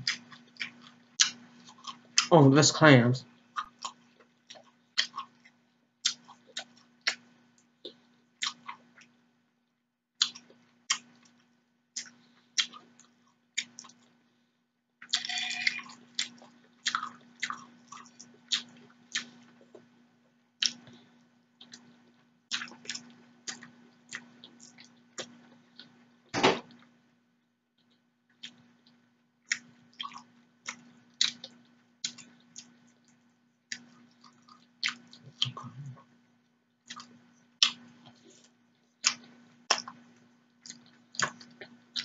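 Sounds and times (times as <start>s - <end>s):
wet chewing and lip-smacking: 0.0s - 2.3s, 3.4s - 9.2s, 10.2s - 14.2s, 15.0s - 20.0s, 20.6s - 26.1s, 27.8s - 36.2s, 36.8s - 42.0s
faint steady hum: 0.0s - 42.0s
loud knock: 26.4s - 26.7s.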